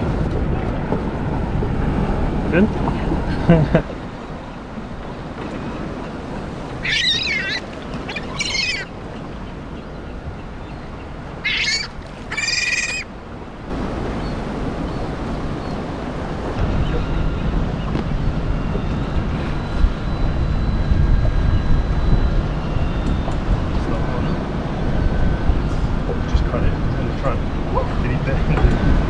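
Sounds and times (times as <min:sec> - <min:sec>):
water noise: 0:00.0 - 0:29.0
wind: 0:00.0 - 0:29.0
seabird squawking: 0:05.8 - 0:13.2.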